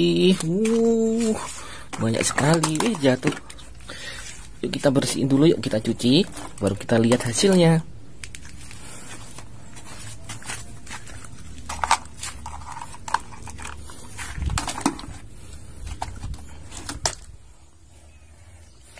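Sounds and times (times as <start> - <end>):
plastic toys clicking and knocking: 1.9 - 3.7, 10.9 - 15.3, 15.9 - 17.4.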